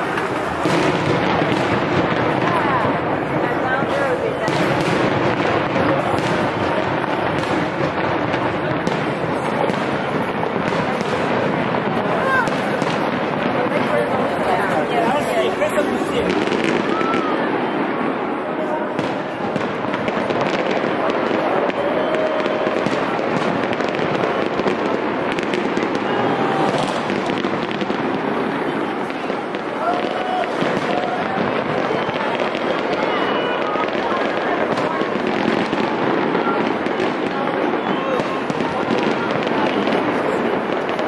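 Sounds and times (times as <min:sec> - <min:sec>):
fireworks crackling: 0:00.0 - 0:41.0.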